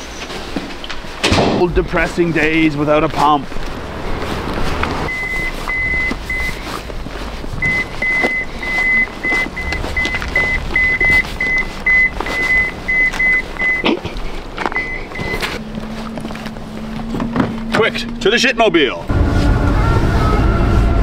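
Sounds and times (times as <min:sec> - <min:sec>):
high electronic beeping: 0:05.1 - 0:06.8, 0:07.6 - 0:13.9, 0:14.8 - 0:15.7.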